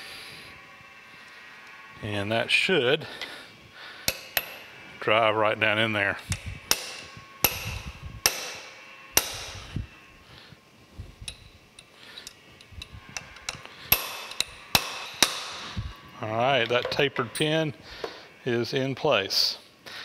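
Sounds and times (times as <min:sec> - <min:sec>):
hammer striking metal pin: 0:04.1 - 0:04.6, 0:06.3 - 0:09.6, 0:11.2 - 0:12.4, 0:13.2 - 0:15.6.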